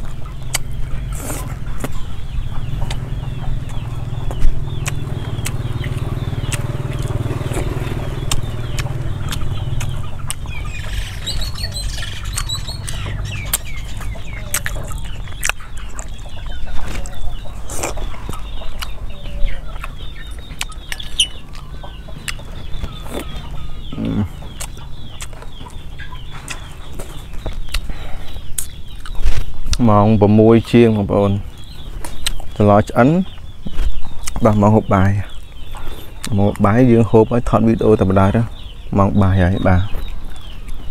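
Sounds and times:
chewing and slurping soup: 0.0s - 2.2s, 2.8s - 29.8s
chickens clucking: 0.0s - 40.9s.

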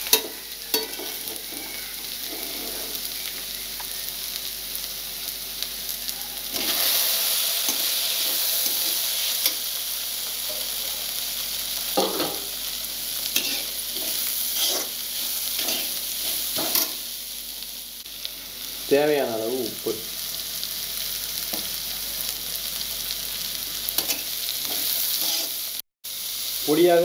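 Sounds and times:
metal spatula scraping a pan: 0.0s - 3.1s, 13.3s - 17.0s, 24.0s - 25.6s
vegetables sizzling in hot oil: 0.0s - 27.0s.

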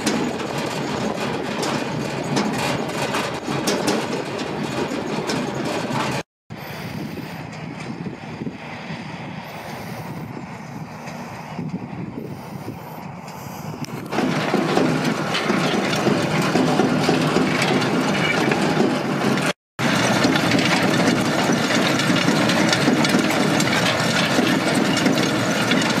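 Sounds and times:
seed drill clatter: 0.0s - 7.4s, 13.8s - 26.0s
tractor diesel engine: 0.0s - 26.0s.

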